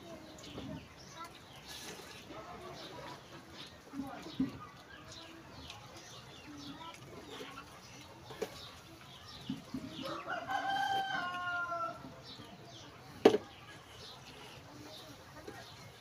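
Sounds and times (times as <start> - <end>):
rooster crowing: 10.0 - 12.0.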